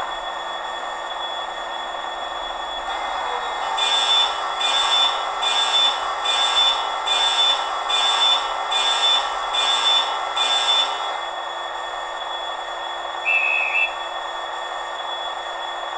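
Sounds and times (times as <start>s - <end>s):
model diesel engine sound: 2.9s - 11.4s
hissing pulse with high tone: 3.7s - 11.4s.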